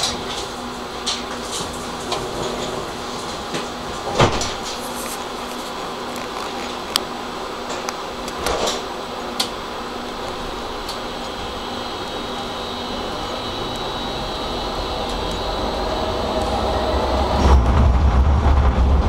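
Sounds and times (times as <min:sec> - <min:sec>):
tram running hum: 0:00.0 - 0:19.0
tram body clunks and rattles: 0:01.1 - 0:04.8, 0:15.2 - 0:19.0
faint high whine: 0:02.8 - 0:18.2.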